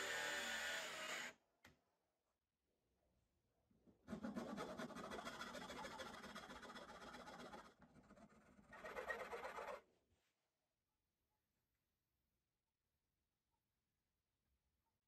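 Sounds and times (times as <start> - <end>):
hand file rasping on wood: 4.1 - 9.5.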